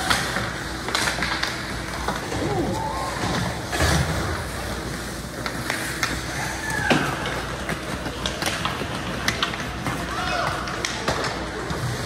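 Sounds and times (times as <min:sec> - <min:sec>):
crowd murmur: 0:01.8 - 0:05.4.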